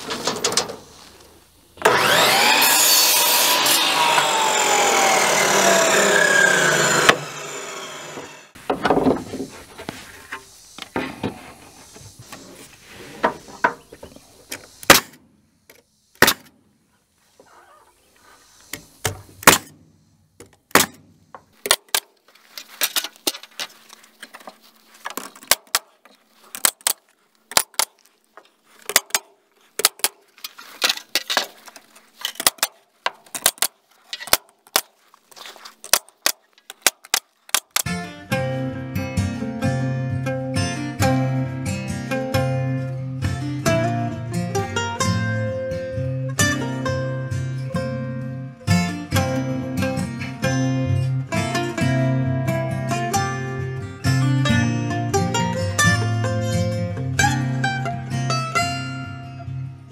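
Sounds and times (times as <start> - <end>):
music: 37.9 - 59.9.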